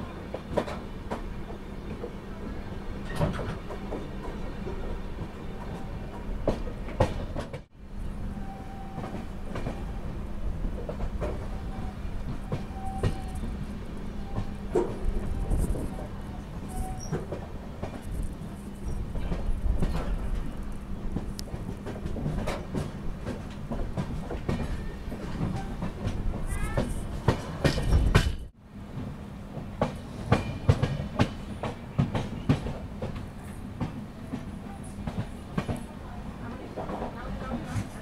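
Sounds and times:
train wheels clacking over rail joints: 0:16.7 - 0:28.5, 0:29.8 - 0:35.8.

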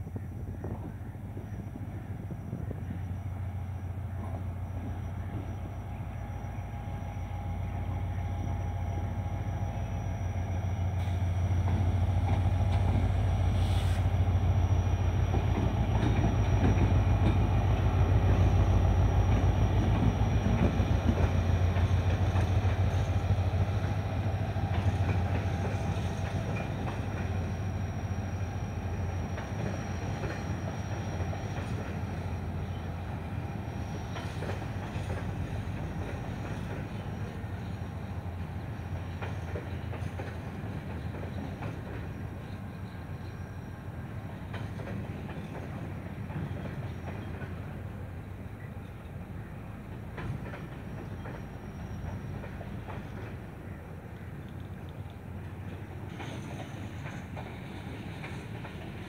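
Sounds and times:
diesel locomotive engine hum: 0:00.0 - 0:59.0.

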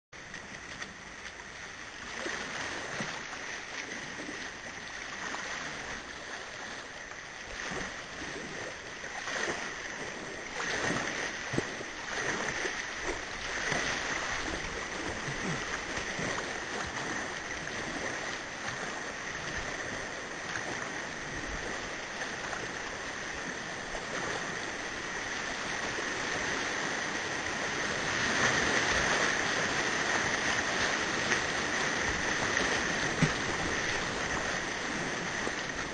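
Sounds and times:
water splashes: 0:00.2 - 0:35.9.

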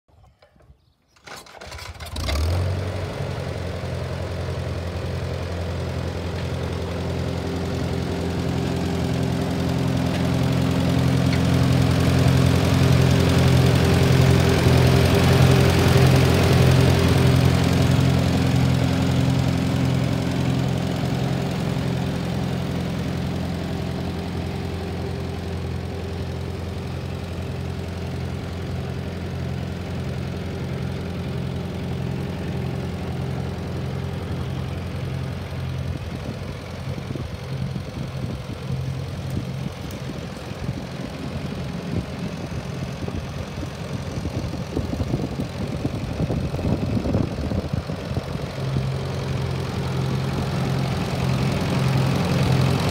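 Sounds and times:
tractor engine idling: 0:00.4 - 0:52.9.

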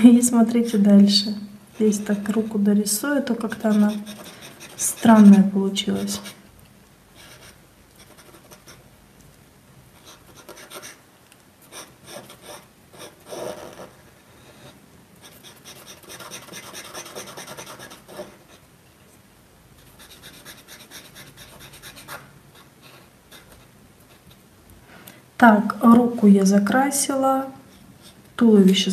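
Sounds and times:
marker scrubbing on paper: 0:03.5 - 0:06.4, 0:10.0 - 0:11.0, 0:11.7 - 0:14.0, 0:15.2 - 0:18.6, 0:19.8 - 0:24.3.

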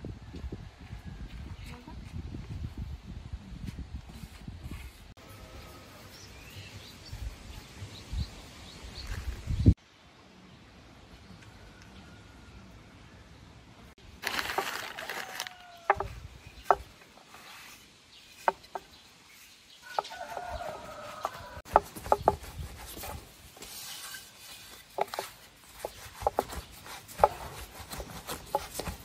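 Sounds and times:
rolling pin knocking on wooden board: 0:15.9 - 0:16.9, 0:21.7 - 0:22.5.

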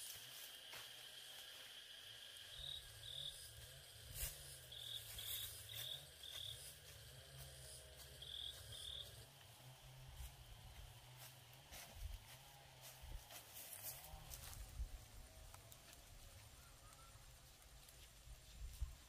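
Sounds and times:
insect short chirps: 0:00.0 - 0:06.7
insect high trill: 0:00.0 - 0:09.2.

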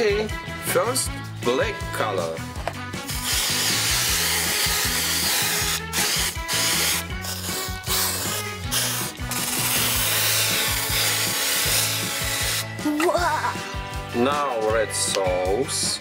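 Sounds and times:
aerosol spray hissing: 0:03.1 - 0:12.7.

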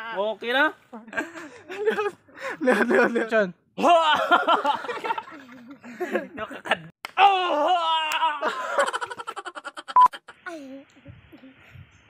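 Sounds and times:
man laughing heartily: 0:01.2 - 0:06.9, 0:08.4 - 0:10.4.

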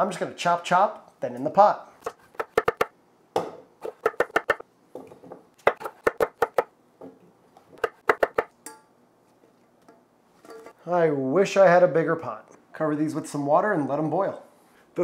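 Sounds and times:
knife chopping on wooden board: 0:02.0 - 0:04.6, 0:05.6 - 0:06.7, 0:07.8 - 0:08.5
metallic clink in saucepan: 0:08.6 - 0:08.9.

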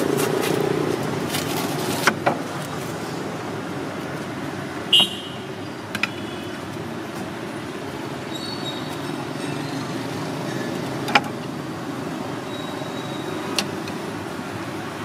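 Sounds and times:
street traffic noise: 0:00.0 - 0:15.0.

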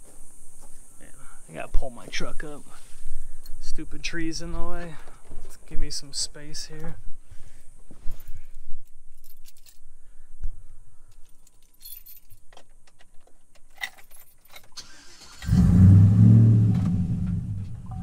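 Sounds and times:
keys jangling: 0:08.0 - 0:09.9, 0:11.1 - 0:14.8
truck engine starting and idling: 0:14.7 - 0:18.0.

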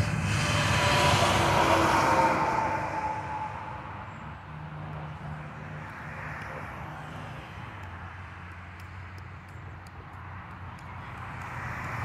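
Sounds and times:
truck driving past: 0:00.0 - 0:06.2
low traffic rumble: 0:00.0 - 0:12.0.

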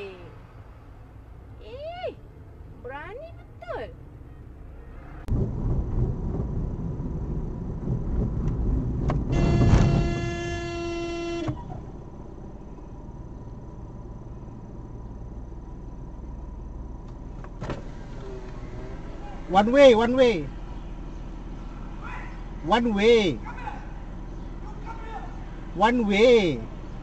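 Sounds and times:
car driving hum: 0:00.0 - 0:27.0
road and traffic noise: 0:00.0 - 0:27.0
vehicle horn blast: 0:09.3 - 0:11.8.

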